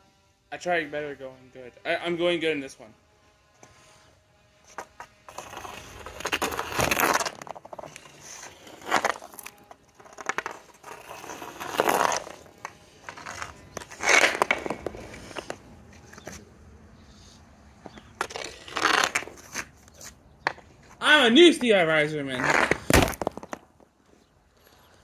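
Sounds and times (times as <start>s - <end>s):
hockey stick scraping asphalt: 3.5s - 25.0s.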